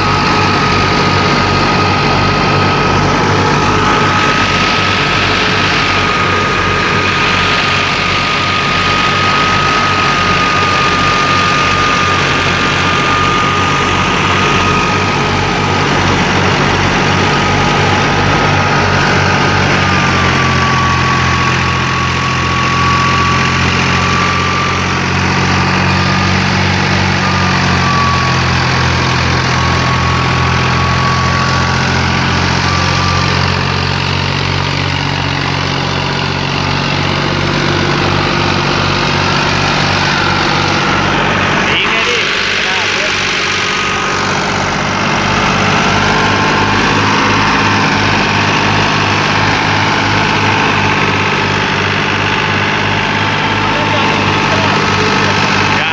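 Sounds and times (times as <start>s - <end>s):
steady high whine: 0.0s - 55.9s
tractor diesel engine running: 0.0s - 55.9s.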